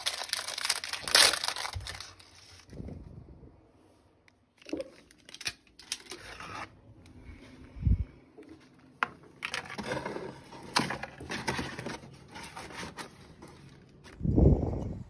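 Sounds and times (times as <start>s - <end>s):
snack packet crinkling: 0.0s - 2.6s, 4.6s - 6.6s.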